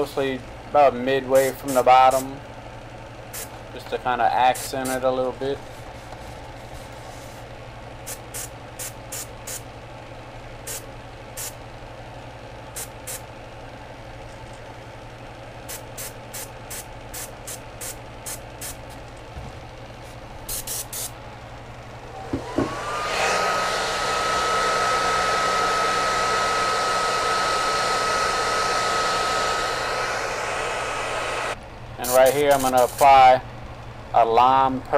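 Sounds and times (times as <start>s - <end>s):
steady low hum: 0.0s - 34.9s
airbrush spraying hissing bursts: 4.5s - 5.0s, 20.5s - 21.1s, 22.6s - 33.2s
hair dryer whining: 22.0s - 31.6s.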